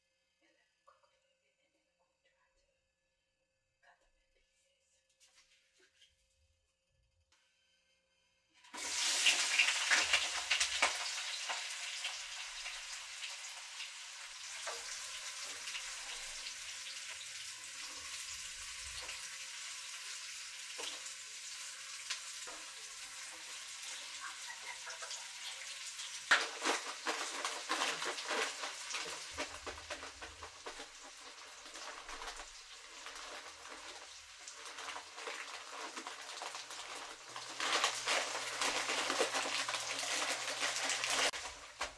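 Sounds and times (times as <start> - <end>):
food sizzling in a frying pan: 8.6 - 41.9
spatula stirring: 20.6 - 41.9
plastic bag being handled: 26.3 - 41.9.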